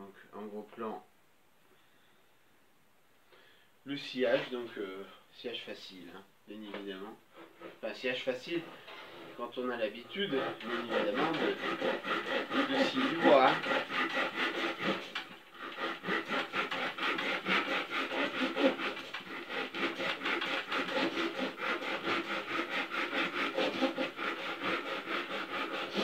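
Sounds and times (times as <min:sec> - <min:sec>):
hand saw cutting wood: 0:07.4 - 0:07.9, 0:08.5 - 0:26.0.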